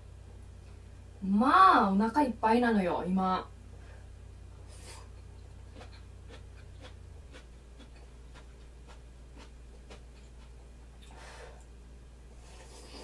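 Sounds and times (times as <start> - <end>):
low hum: 0.0 - 13.0
person chewing food: 4.7 - 11.8.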